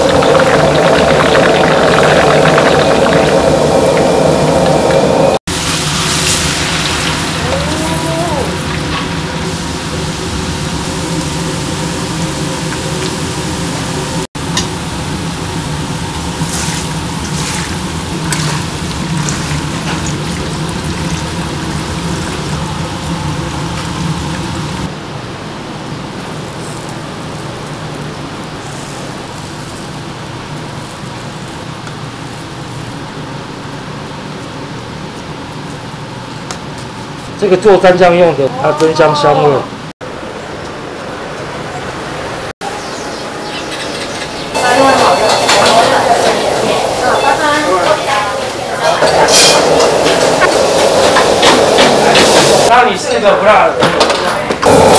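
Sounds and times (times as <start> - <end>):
low hum: 0.0 - 13.1
garlic sizzling in hot oil: 0.0 - 24.9.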